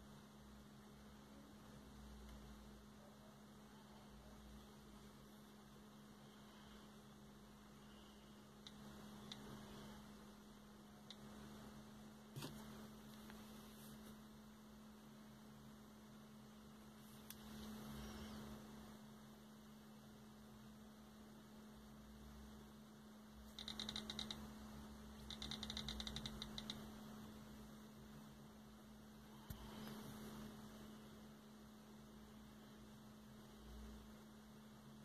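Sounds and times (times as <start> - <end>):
faint steady hum: 0.0 - 35.0
phone picker wheel ticking: 23.5 - 24.4, 25.2 - 26.8.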